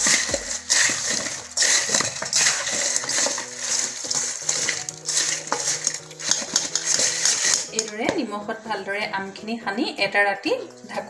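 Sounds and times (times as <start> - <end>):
fruit pieces scraping in metal bowl: 0.0 - 8.2
background music: 0.0 - 11.0.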